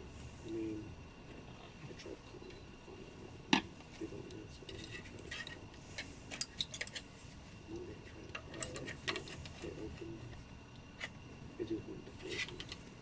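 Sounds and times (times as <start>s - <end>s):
metal rods clinking and clicking: 4.7s - 7.0s, 8.3s - 9.6s.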